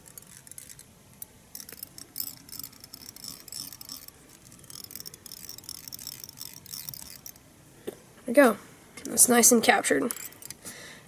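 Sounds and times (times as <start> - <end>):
thread wrapping clicks and rasps: 0.0 - 7.4, 10.0 - 10.7.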